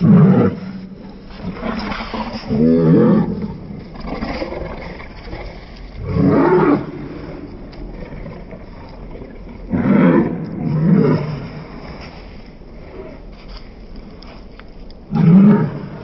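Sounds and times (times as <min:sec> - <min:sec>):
dogs growling and snarling: 0:00.0 - 0:12.0.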